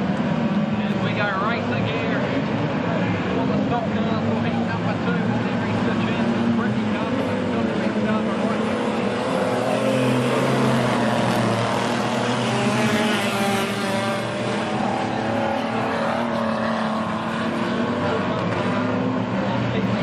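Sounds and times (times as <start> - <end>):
racing car engines: 0.0 - 20.0.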